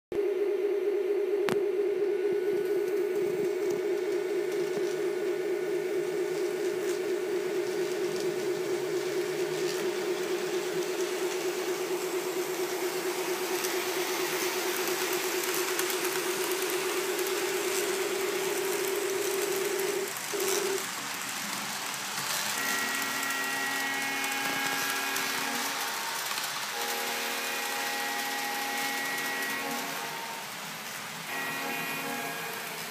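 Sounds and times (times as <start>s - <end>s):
diesel engine sound effect: 0.1s - 21.1s
model train motor hum: 3.2s - 32.9s
locomotive multi-note horn: 22.5s - 30.6s, 31.2s - 32.9s.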